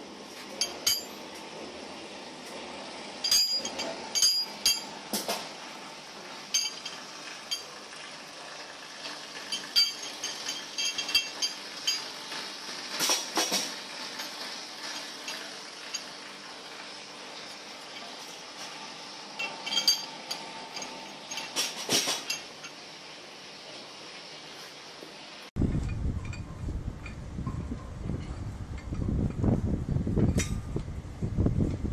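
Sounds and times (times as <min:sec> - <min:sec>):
anchor chain links clanking: 0:03.2 - 0:05.0, 0:06.5 - 0:07.7, 0:09.5 - 0:12.2, 0:19.4 - 0:22.7.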